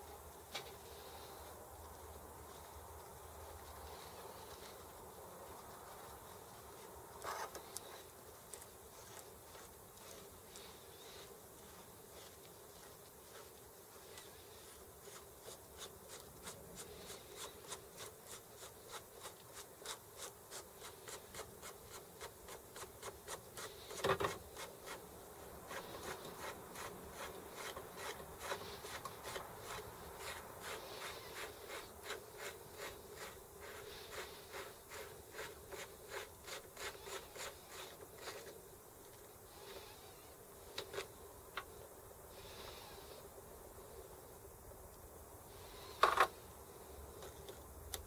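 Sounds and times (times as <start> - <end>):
bicycle hub clicking and rubbing: 14.2 - 38.5.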